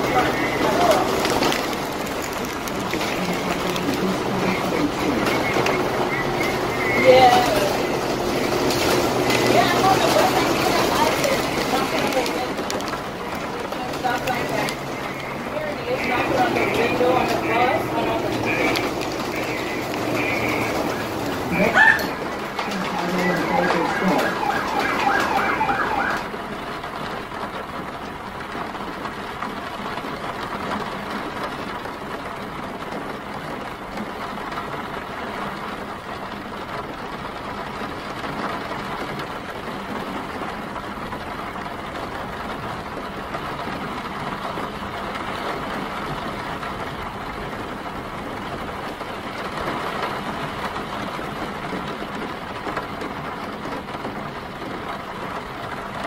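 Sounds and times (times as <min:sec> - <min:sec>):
warbling siren: 0:00.0 - 0:11.7, 0:14.4 - 0:26.4
city traffic: 0:00.0 - 0:56.0
rain hiss: 0:00.0 - 0:56.0.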